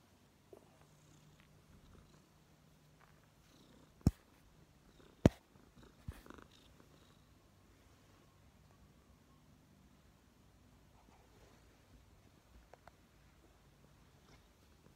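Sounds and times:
cat purring: 0.4 - 8.1, 10.9 - 14.9.

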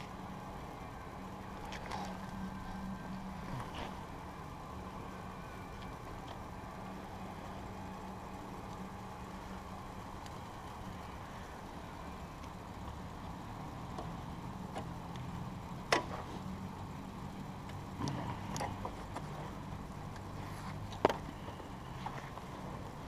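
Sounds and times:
low steady hum: 0.0 - 23.0
rustling and handling noises: 18.0 - 23.0.

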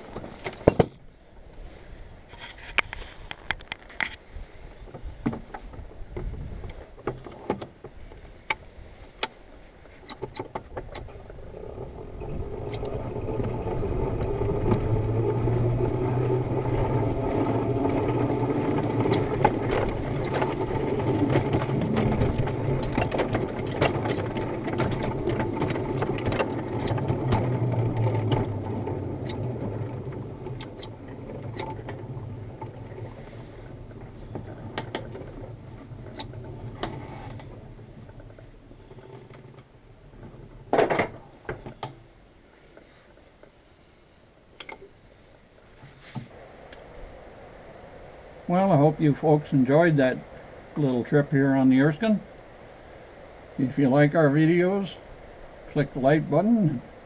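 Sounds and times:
wheels clicking on rails: 2.3 - 43.6, 44.5 - 57.0
ride-on train motor humming: 9.8 - 42.2.

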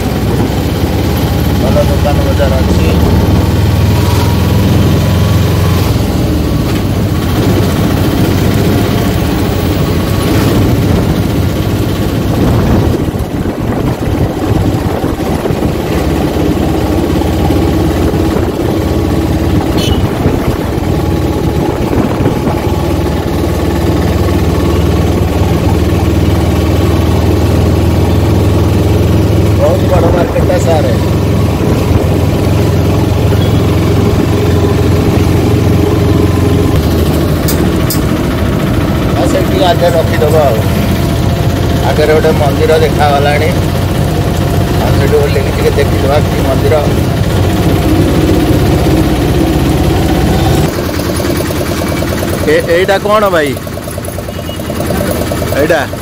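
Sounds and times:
vehicle engine running: 0.0 - 56.0
wind rumble on microphone: 6.8 - 23.2, 31.4 - 32.6.

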